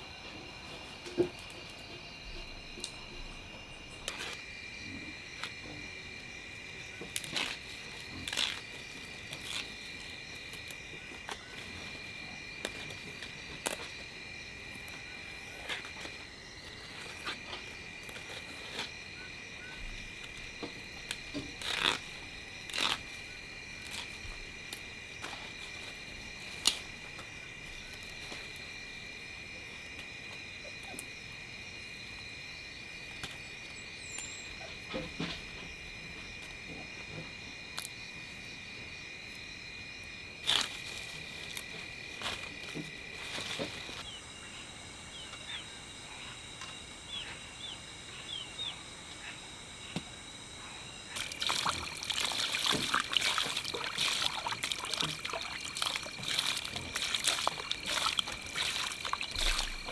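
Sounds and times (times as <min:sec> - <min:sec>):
night insects chirring: 0:00.0 - 0:59.9
vegetable stems snapping: 0:07.1 - 0:08.6, 0:22.7 - 0:23.1, 0:26.6 - 0:26.8.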